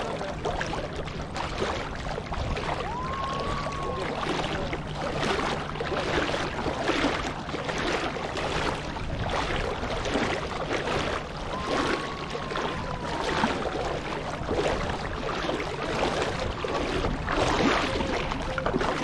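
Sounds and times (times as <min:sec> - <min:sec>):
sea water lapping and sloshing: 0:00.0 - 0:19.0.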